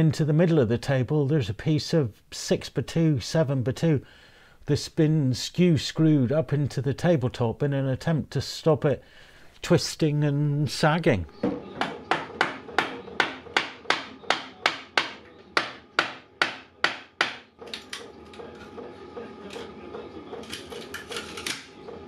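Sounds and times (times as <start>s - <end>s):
mallet striking chisel: 11.8s - 17.5s.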